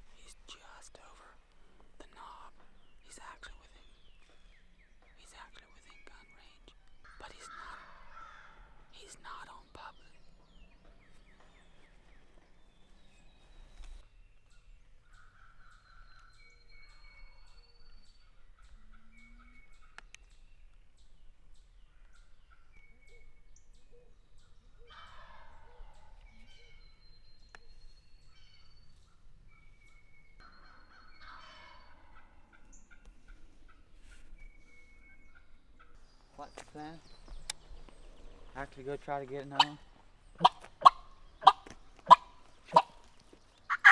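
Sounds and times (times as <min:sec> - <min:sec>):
songbirds singing: 0:00.0 - 0:43.9
turkey gobbling: 0:24.9 - 0:25.9, 0:30.5 - 0:33.9, 0:39.4 - 0:43.9.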